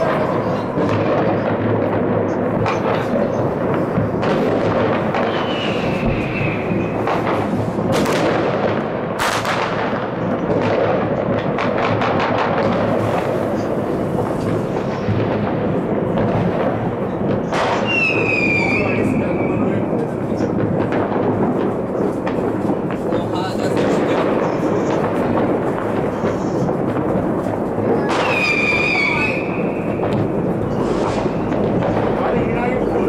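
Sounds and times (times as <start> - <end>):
distant fireworks bangs and crackles: 0.0 - 33.0
loud firework bangs: 0.0 - 33.0
firework whistle: 5.1 - 7.7, 17.5 - 20.5, 28.0 - 32.1.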